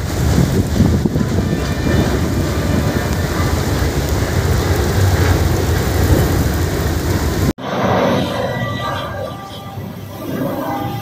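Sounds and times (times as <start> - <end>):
heavy rain hiss: 0.0 - 7.5
wind buffeting microphone: 0.0 - 7.6.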